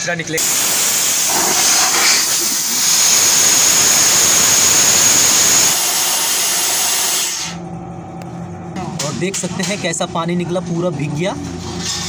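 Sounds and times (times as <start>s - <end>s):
compressed air blasting through pipe: 0.4s - 7.6s.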